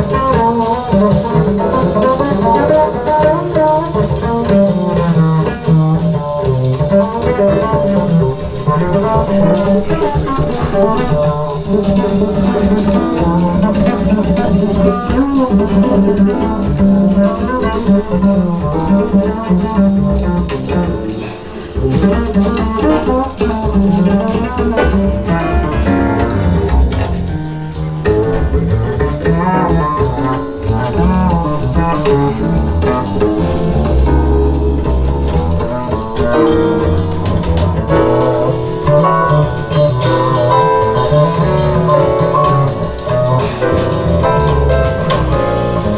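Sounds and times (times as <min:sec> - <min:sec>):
recorded music with double bass and guitar: 0:00.0 - 0:45.9.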